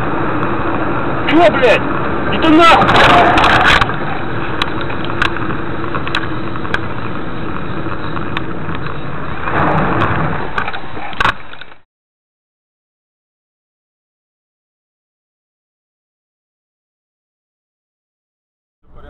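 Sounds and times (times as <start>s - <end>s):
car engine and road noise: 0.0s - 11.8s.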